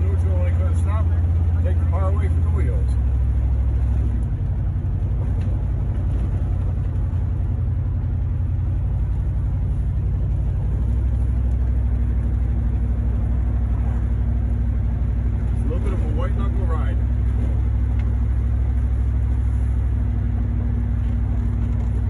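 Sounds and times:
car engine rumbling: 0.0 - 22.0.

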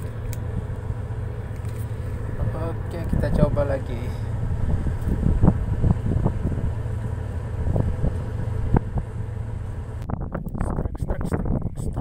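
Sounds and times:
boat engine low rumble: 0.0 - 12.0
wind buffeting microphone: 0.0 - 12.0.

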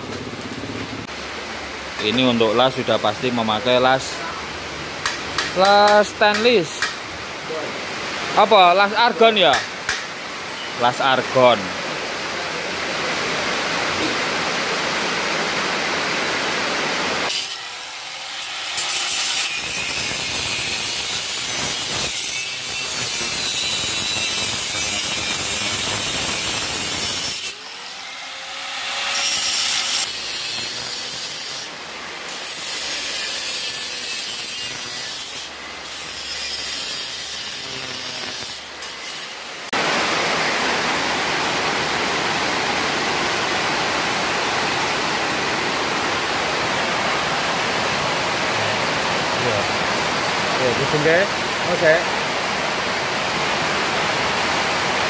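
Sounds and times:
heavy rain: 0.0 - 28.0, 29.6 - 33.5, 39.4 - 55.0
angle grinder cutting metal pipe: 17.3 - 39.4.

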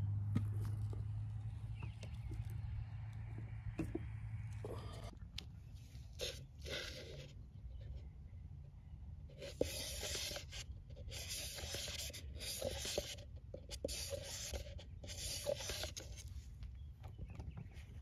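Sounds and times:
stick scraping plastic cup: 6.1 - 8.1, 9.3 - 16.3.

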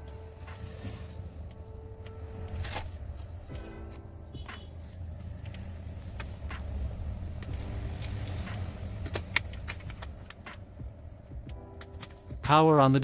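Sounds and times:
steady low hum: 0.0 - 12.5.

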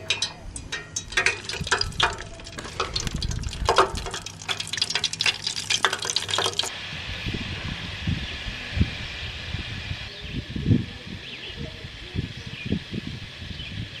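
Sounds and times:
fish deep-frying in oil: 0.0 - 6.7
pot clatter: 0.0 - 6.7.

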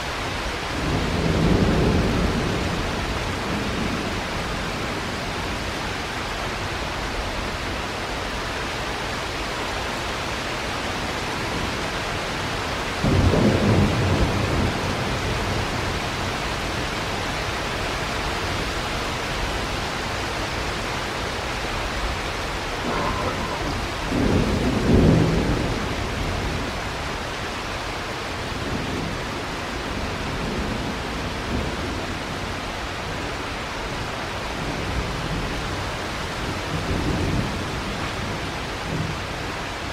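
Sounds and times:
heavy rain: 0.0 - 39.9
thunder rumbling: 0.7 - 5.2, 12.9 - 16.4, 22.5 - 27.1.

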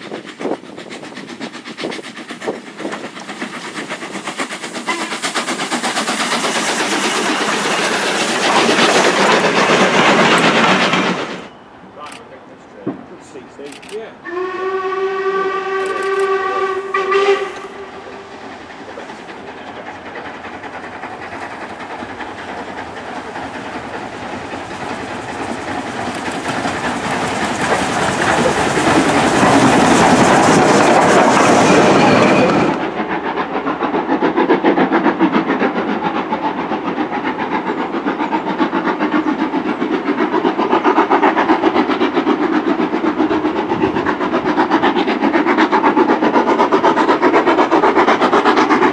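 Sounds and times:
rhythmic steam exhaust beats: 0.0 - 48.9
steam hiss: 0.0 - 48.9
train passing with rumble: 0.0 - 48.9
steam locomotive whistle: 4.9 - 5.2, 14.2 - 18.3.

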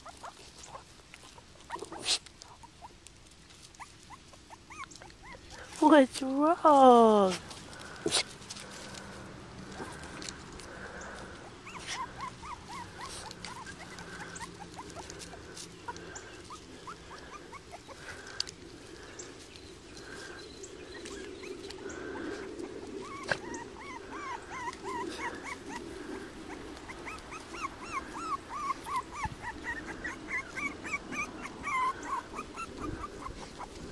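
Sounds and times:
puppy whimpering and squeaking: 3.8 - 5.6, 11.5 - 18.0, 23.0 - 25.9, 26.5 - 33.9.

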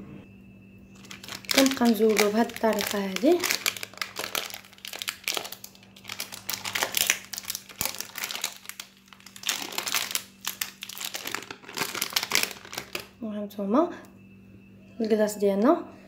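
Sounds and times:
plastic wrapper crinkling: 1.0 - 13.2.

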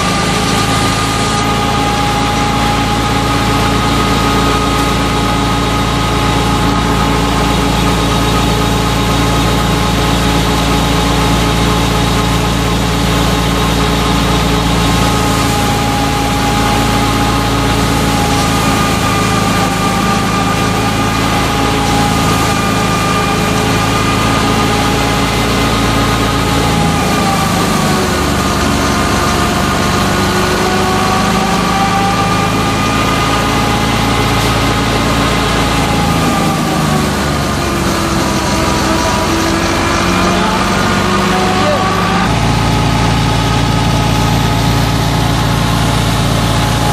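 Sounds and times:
thresher whining: 0.0 - 46.9
tractor diesel engine: 0.0 - 46.9.

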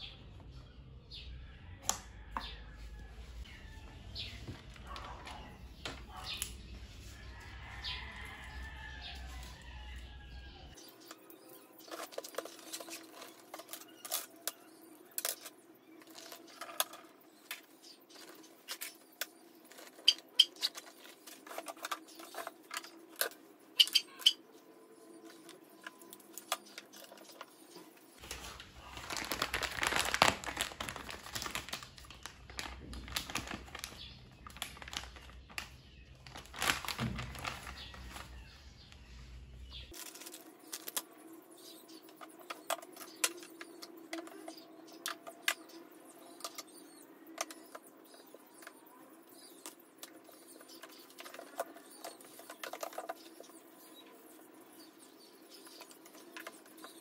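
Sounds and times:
rustling: 28.1 - 41.0.

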